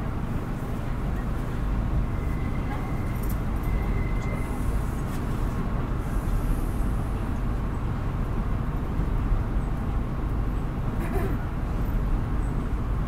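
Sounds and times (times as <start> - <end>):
bus diesel engine drone: 0.0 - 13.0.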